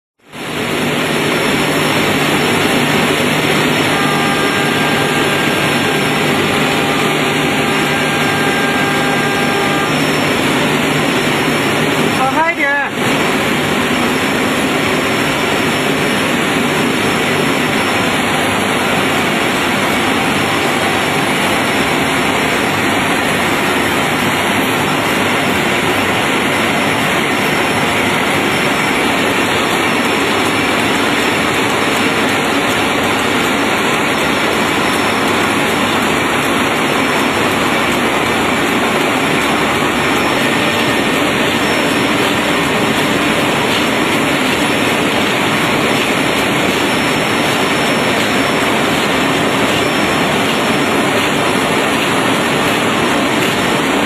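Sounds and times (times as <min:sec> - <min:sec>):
machine running steadily: 0:00.2 - 0:54.0.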